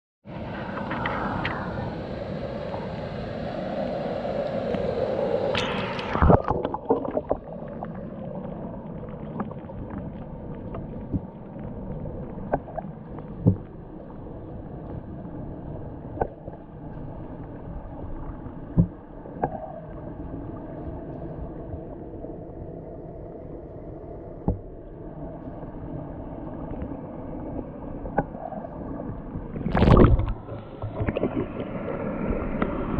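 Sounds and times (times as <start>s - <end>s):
muffled underwater wash: 0.2s - 32.9s
water hissing at surface: 0.4s - 8.0s
water splash: 5.5s - 8.2s, 29.5s - 31.9s
small underwater knocks and clicks: 9.2s - 11.4s, 12.4s - 13.7s, 18.7s - 19.7s, 24.4s - 24.8s, 29.6s - 31.6s.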